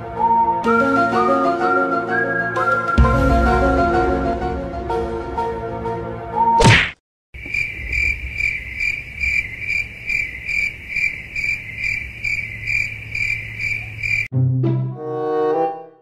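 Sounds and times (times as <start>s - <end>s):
cricket chirping: 7.4s - 14.3s.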